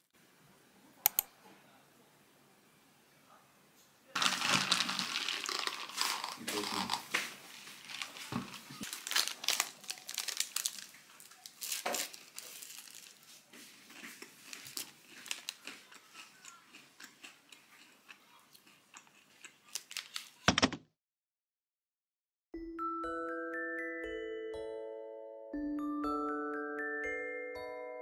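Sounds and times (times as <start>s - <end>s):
paper wrapper crinkling: 4.2s - 16.3s, 19.6s - 20.4s.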